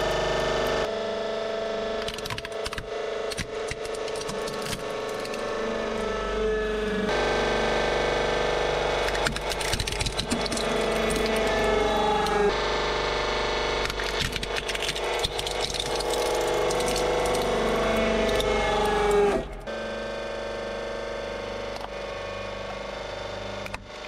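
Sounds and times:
hydraulic press pump hum: 0:00.0 - 0:24.0
plastic cracking and snapping: 0:02.0 - 0:05.5, 0:09.0 - 0:12.4, 0:13.8 - 0:19.2
crunching and creaking: 0:03.3 - 0:07.1, 0:09.0 - 0:12.5, 0:13.8 - 0:19.7.

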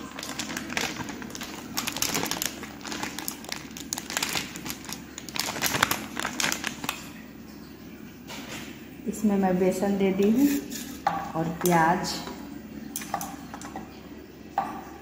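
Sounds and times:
flour crinkling into bowl: 0:00.0 - 0:07.2.

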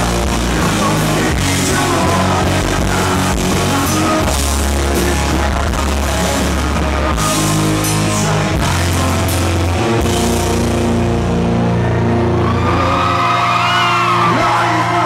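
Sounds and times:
man singing lead: 0:00.0 - 0:10.9, 0:14.0 - 0:15.0
live rock band playing: 0:00.0 - 0:15.0.

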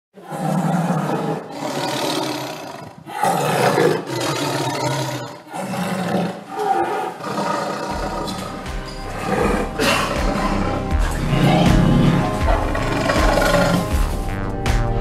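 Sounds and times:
tiger roaring: 0:00.2 - 0:14.0
low music: 0:07.8 - 0:15.0.

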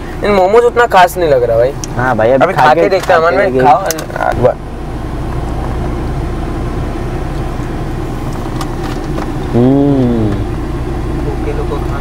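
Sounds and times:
car idling: 0:00.0 - 0:12.0
traffic: 0:00.0 - 0:12.0
person humming: 0:09.5 - 0:10.5.

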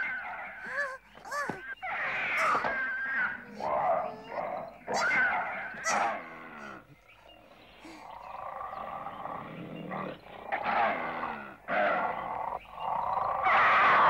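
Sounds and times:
cartoon animals snarling: 0:00.0 - 0:07.0.

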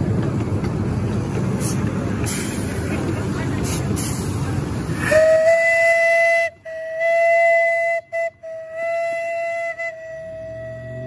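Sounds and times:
steam rushing: 0:01.3 - 0:07.4
steam whistle blasts: 0:05.0 - 0:11.0.

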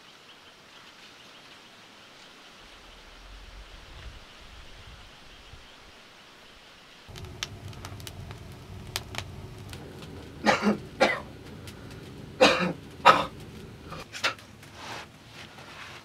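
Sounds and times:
wood fire crackling: 0:06.9 - 0:16.0
man coughing: 0:10.4 - 0:11.3, 0:12.4 - 0:13.4.

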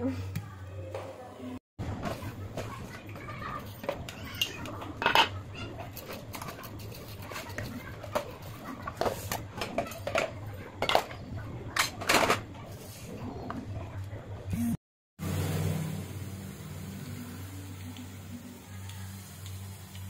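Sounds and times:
pots and pans clattering: 0:02.0 - 0:12.5.

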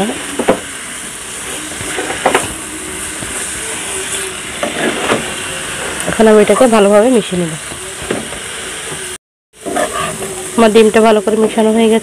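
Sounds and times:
cabbage and egg sizzling in pan: 0:00.0 - 0:12.0
spatula scraping a pan: 0:09.6 - 0:10.4.

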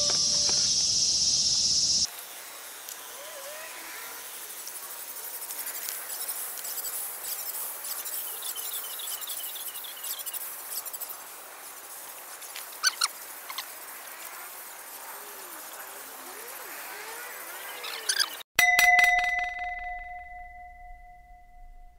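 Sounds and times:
birds and insects chirping: 0:00.0 - 0:18.5.

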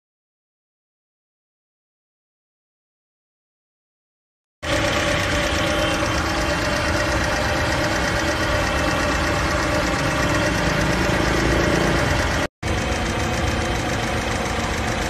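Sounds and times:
car engine idling: 0:04.6 - 0:15.0.

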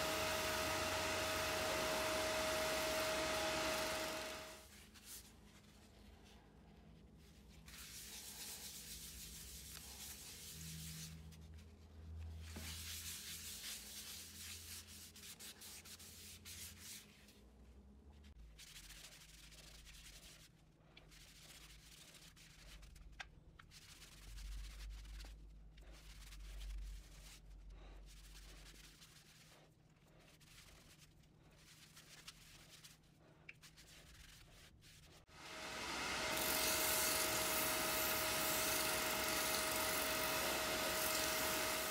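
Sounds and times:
pad scrubbing wooden bowl: 0:00.0 - 0:04.6.

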